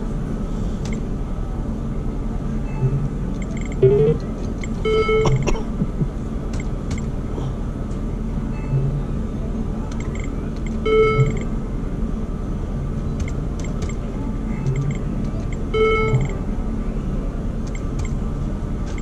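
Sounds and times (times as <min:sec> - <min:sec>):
short electronic tones: 0:02.7 - 0:05.4, 0:10.0 - 0:11.5, 0:15.8 - 0:16.4.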